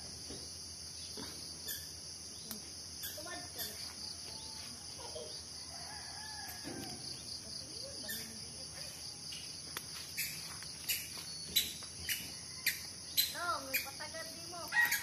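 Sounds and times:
insects droning: 0:00.0 - 0:15.0
distant rooster crowing: 0:05.5 - 0:07.2, 0:14.7 - 0:15.0.

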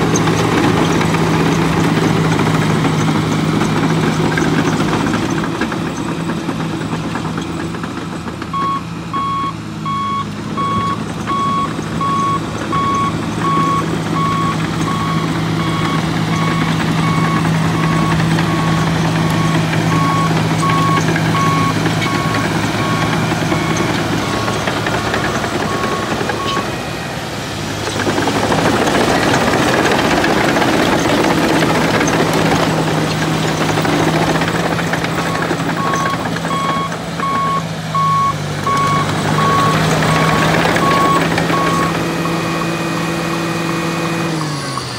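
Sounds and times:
diesel engine running: 0:00.0 - 0:44.9
backup alarm beeping: 0:08.5 - 0:26.8, 0:35.3 - 0:42.6
rough rush of machine noise: 0:16.2 - 0:36.5.

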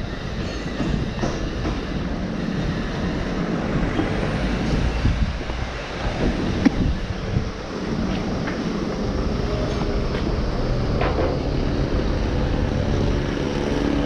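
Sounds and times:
passing vehicle rumble: 0:03.3 - 0:14.0
knocks and clatter: 0:09.7 - 0:11.7.

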